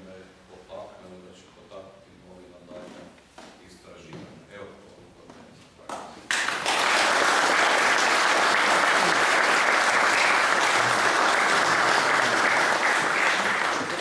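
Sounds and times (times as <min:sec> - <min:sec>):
audience applauding: 0:06.3 - 0:14.0.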